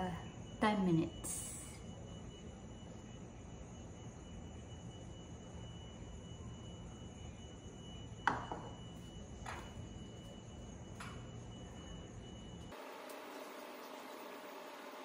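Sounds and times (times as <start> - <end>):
faint high whine: 0.0 - 15.0
bowl knocking on countertop: 8.3 - 8.7.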